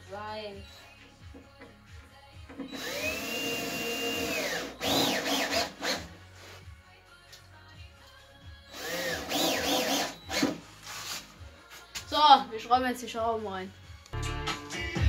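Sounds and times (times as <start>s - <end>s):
drill driving screws into board: 2.6s - 6.1s, 8.7s - 10.6s.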